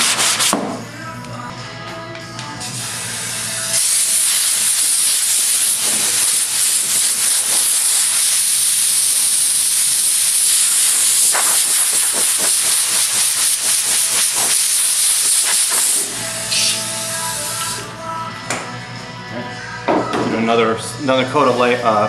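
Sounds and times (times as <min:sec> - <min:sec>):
air blow gun hissing: 0:02.6 - 0:17.9.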